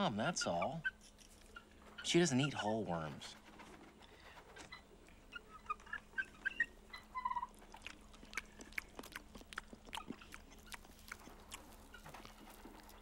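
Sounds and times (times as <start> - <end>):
man chewing with wet smacking: 5.0 - 13.0.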